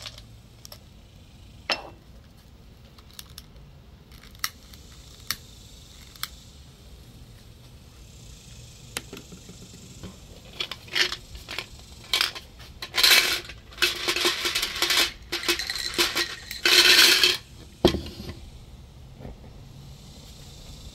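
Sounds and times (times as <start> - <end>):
glass clinking and rattling: 1.7 - 2.0, 10.6 - 18.3.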